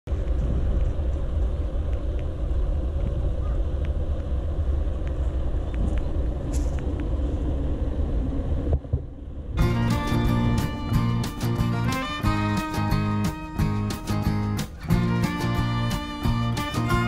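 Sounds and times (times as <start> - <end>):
low outdoor rumble: 0.1 - 17.0
guitar music: 9.6 - 17.0.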